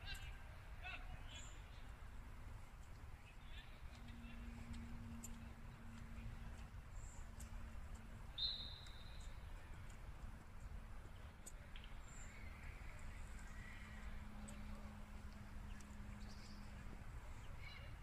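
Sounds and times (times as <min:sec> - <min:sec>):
faint ticks: 0:03.9 - 0:16.4
high whistle-like chirp: 0:08.4 - 0:09.3.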